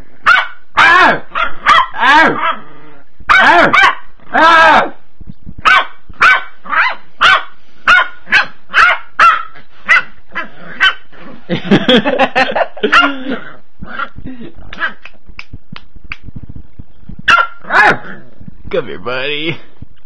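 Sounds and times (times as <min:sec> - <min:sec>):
puppy yapping: 0:00.3 - 0:02.6, 0:03.3 - 0:04.9, 0:05.6 - 0:11.0, 0:17.3 - 0:18.2.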